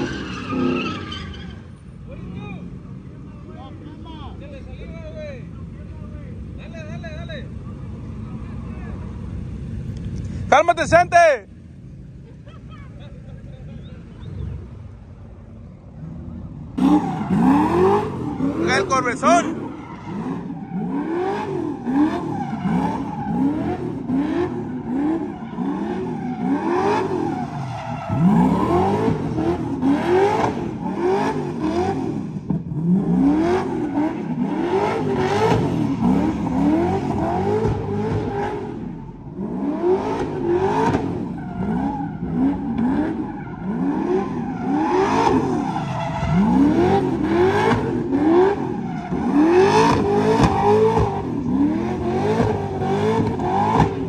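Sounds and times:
tires spinning on pavement: 0.0 - 54.0
car engine revving: 13.8 - 54.0.

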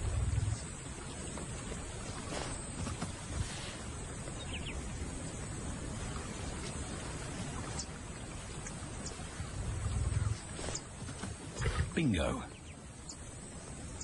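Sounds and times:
steady hiss with low rumble: 0.0 - 14.0
faint bird chirps: 11.6 - 14.0.

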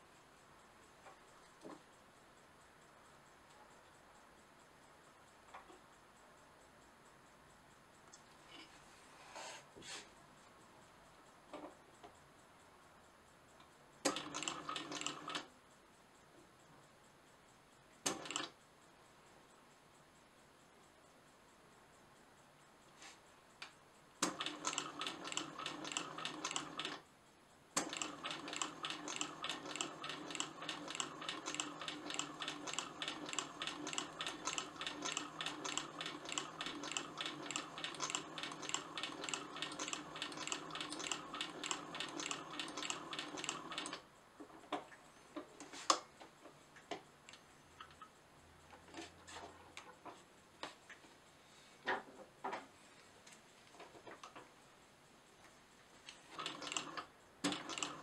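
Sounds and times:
scattered clicks and knocks: 0.8 - 2.0, 5.3 - 6.0, 10.4 - 12.4, 13.5 - 15.6, 17.7 - 18.6, 27.8 - 51.2, 51.8 - 54.6
sewing machine stitching: 14.0 - 15.5, 18.1 - 18.5, 24.2 - 27.0, 27.8 - 44.0, 56.2 - 58.0.

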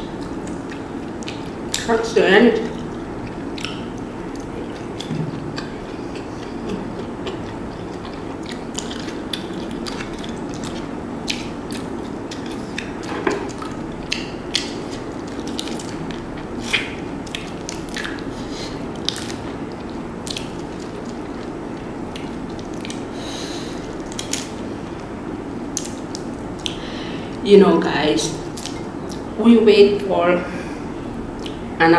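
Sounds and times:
steady low hum: 0.0 - 31.9
wet chewing and lip smacks: 0.2 - 1.9, 2.6 - 23.1, 23.8 - 24.7, 25.7 - 26.8, 28.5 - 29.3, 31.4 - 31.6.

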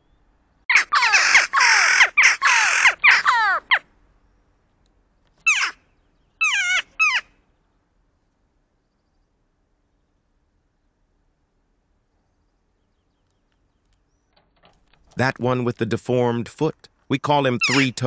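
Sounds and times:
jackdaws calling harshly: 0.7 - 3.9, 5.4 - 7.4, 17.4 - 18.0.

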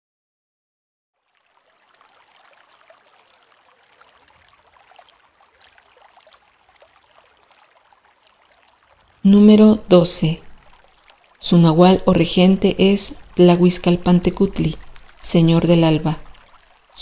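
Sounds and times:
water trickling and splashing: 1.2 - 17.0.

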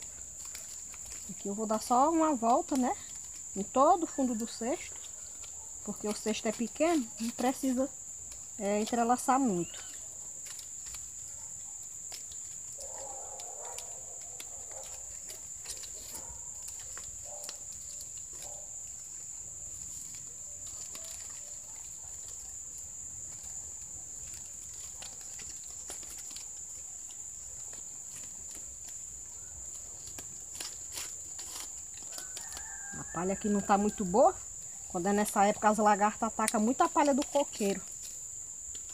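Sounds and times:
insect trilling: 0.0 - 38.9
palm leaves crackling and rustling: 0.0 - 38.9
faint animal call: 9.5 - 10.2.

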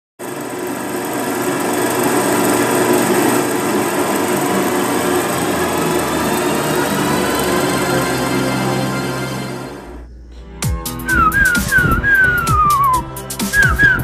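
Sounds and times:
film projector whirring: 0.2 - 10.0.

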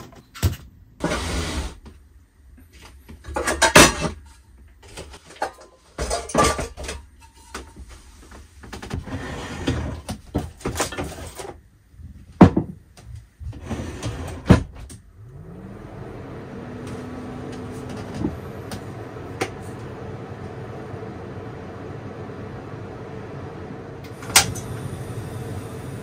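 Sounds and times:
objects clattering and rustling: 2.6 - 15.0.

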